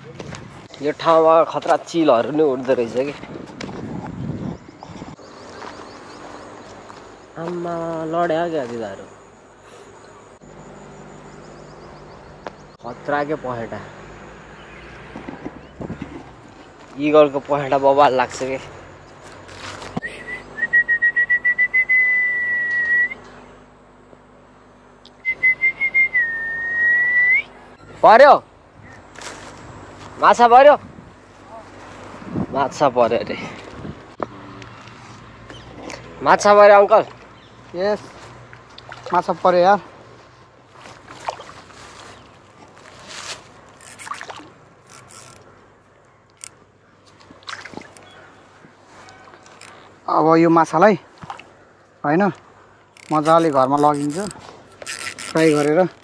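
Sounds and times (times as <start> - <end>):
person whistling high note: 20.0 - 23.2, 25.2 - 27.5
fish splashing in water: 38.4 - 39.4, 40.9 - 42.2, 43.8 - 44.6, 47.1 - 48.3.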